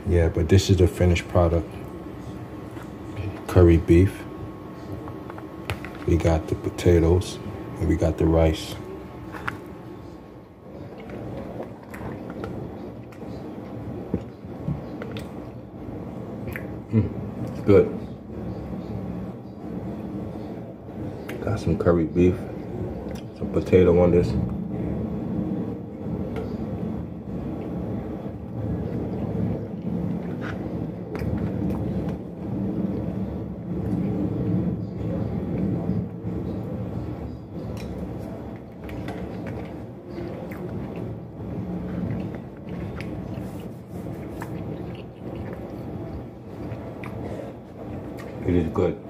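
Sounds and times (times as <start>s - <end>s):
low background hum: 0.0s - 49.0s
low background rumble: 0.0s - 49.0s
chewing: 10.8s - 13.4s, 37.7s - 48.4s.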